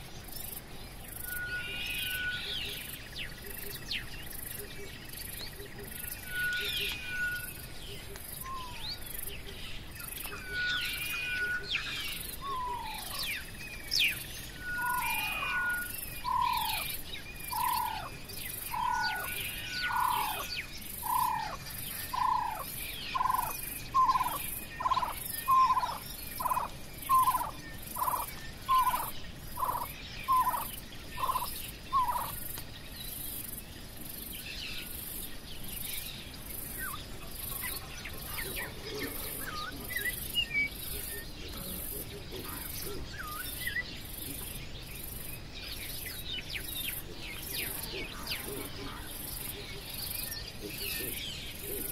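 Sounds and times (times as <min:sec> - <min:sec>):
birds chirping: 0:00.0 - 0:51.9
insects pulsing high-pitched: 0:00.0 - 0:51.9
bird calling downward-slurred notes: 0:01.2 - 0:02.8, 0:06.2 - 0:07.6, 0:10.2 - 0:13.4, 0:14.6 - 0:16.9, 0:18.7 - 0:32.3.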